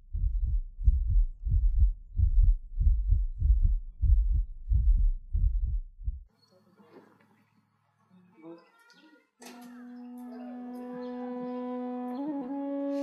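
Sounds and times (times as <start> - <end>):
heartbeat: 0.0 - 6.3.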